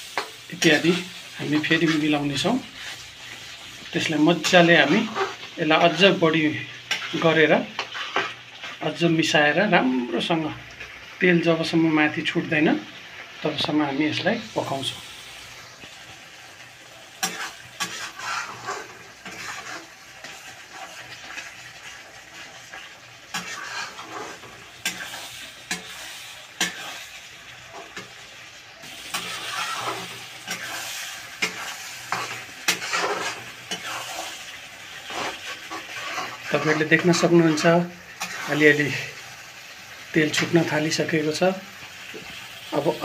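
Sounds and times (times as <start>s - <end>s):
frying sizzle: 0.0s - 43.0s
steel spatula scraping a pan: 0.1s - 6.0s, 6.9s - 8.8s, 17.1s - 28.2s, 28.8s - 38.8s.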